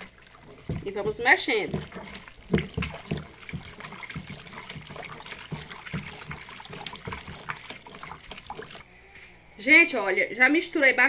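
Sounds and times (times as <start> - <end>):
liquid sloshing in a bucket: 0.0 - 8.8.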